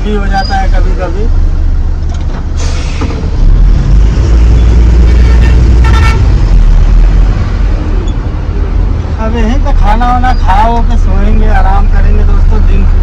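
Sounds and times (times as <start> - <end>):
truck horn toot: 5.1 - 6.4.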